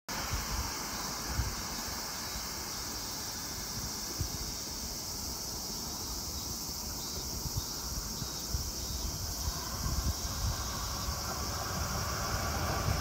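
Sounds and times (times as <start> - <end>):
high insect chorus: 0.1 - 13.0
rumble of approaching train: 0.1 - 13.0
wind buffeting microphone: 7.1 - 13.0.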